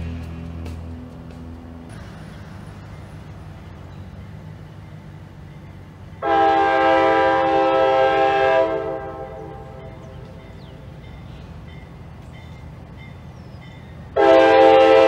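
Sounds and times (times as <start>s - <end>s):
locomotive air horn blast: 6.2s - 10.1s, 14.2s - 15.0s.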